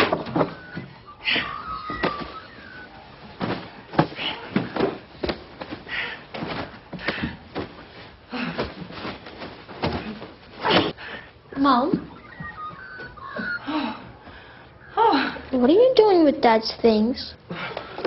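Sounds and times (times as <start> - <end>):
irregular knocks and thuds: 0.0 - 1.0, 3.3 - 11.0.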